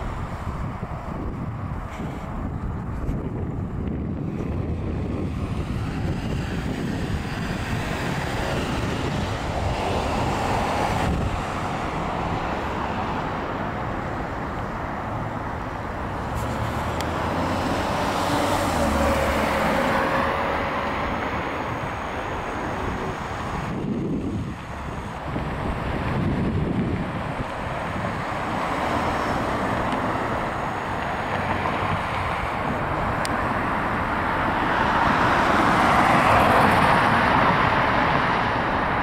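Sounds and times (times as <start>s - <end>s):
cars and trucks passing: 0.0s - 39.0s.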